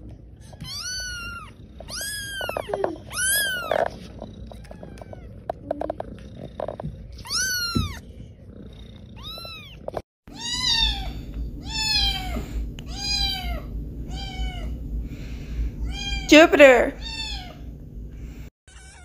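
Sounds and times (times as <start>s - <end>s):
low steady rumble: 0.0s - 18.5s
cat meowing: 0.5s - 5.5s, 7.2s - 8.0s, 9.2s - 14.8s, 15.8s - 16.3s, 17.0s - 17.6s, 18.7s - 19.0s
kitten meowing high-pitched: 0.6s - 3.8s, 7.2s - 8.0s, 9.2s - 14.7s, 18.7s - 19.0s.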